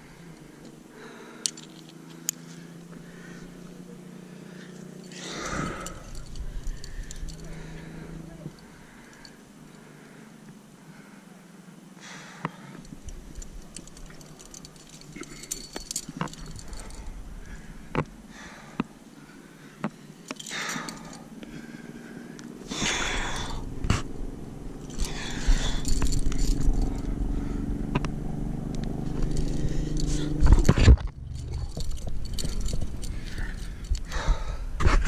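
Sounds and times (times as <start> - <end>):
hard breathing: 0.0 - 24.2, 24.8 - 27.9, 29.2 - 30.7, 31.3 - 35.0
metal gear clinking: 4.6 - 9.8, 12.8 - 17.9, 20.1 - 21.3, 24.8 - 27.3, 29.1 - 34.2
low rumble: 5.3 - 8.9, 12.9 - 18.7, 22.7 - 34.8.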